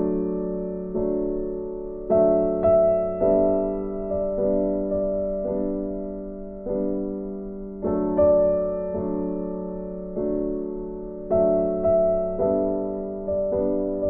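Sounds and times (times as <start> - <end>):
soft slow piano chords: 0.0 - 14.0.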